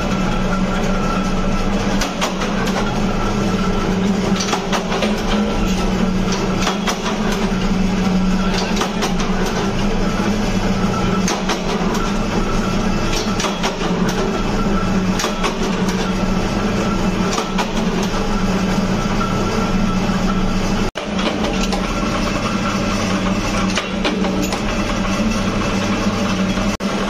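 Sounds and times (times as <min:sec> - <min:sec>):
punch press motor hum: 0:00.0 - 0:27.0
punch press sharp clacks: 0:06.3 - 0:07.5, 0:13.1 - 0:14.2.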